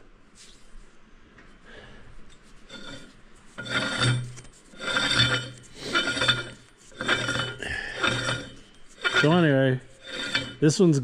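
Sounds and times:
metal threads scraping: 2.3s - 11.0s.

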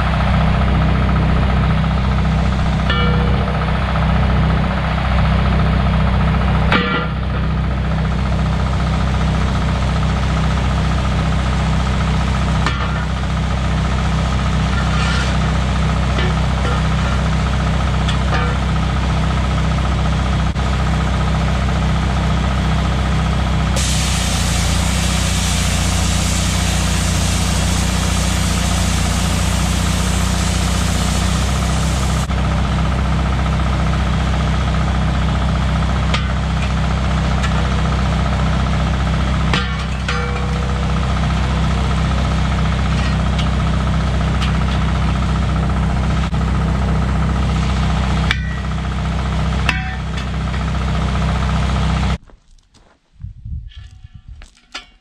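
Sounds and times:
welder engine idling: 0.0s - 52.2s
metal wheels clanking: 1.2s - 32.4s, 33.0s - 52.2s, 53.7s - 55.0s
steady hiss: 23.8s - 32.3s.

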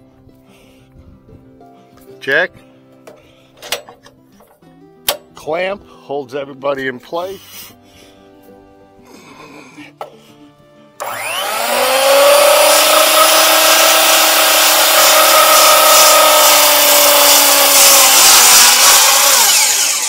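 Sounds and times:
sawmill saw whining through timber: 11.0s - 20.0s.

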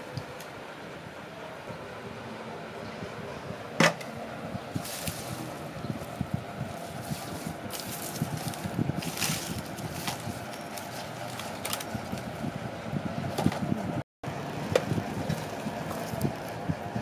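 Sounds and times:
outdoor background hiss: 0.0s - 17.0s
herbs rustling and knocking: 4.8s - 12.4s.

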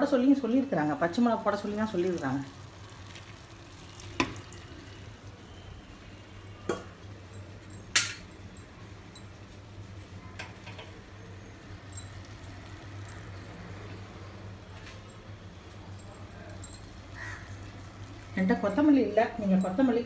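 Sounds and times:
metal spoon clinking on steel: 6.7s - 9.3s, 11.8s - 13.4s.

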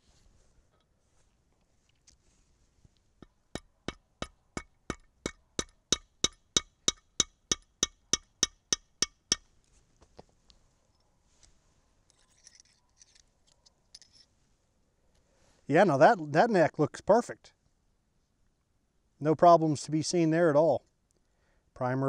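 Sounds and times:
metal taps with short ring: 3.6s - 9.4s.

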